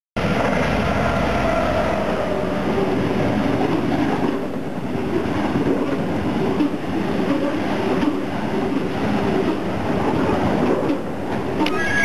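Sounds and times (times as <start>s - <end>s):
train wheels rumbling on rails: 0.2s - 12.0s
faint locomotive tone: 11.6s - 12.0s.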